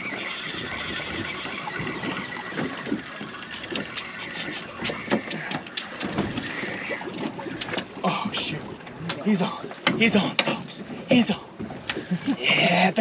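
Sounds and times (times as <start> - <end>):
sea waves: 0.0 - 13.0
wind: 0.0 - 13.0
fishing reel clicking: 0.1 - 1.6.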